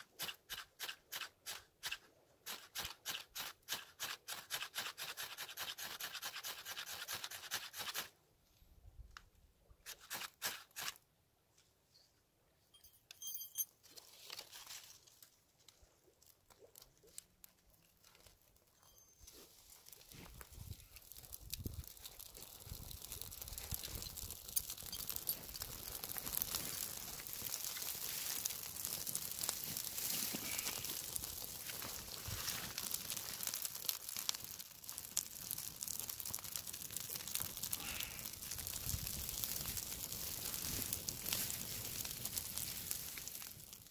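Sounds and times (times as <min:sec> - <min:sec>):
twigs rustling: 0:13.8 - 0:43.9
dry bark crinkling: 0:13.9 - 0:43.9
faint fire crackles: 0:13.9 - 0:43.9.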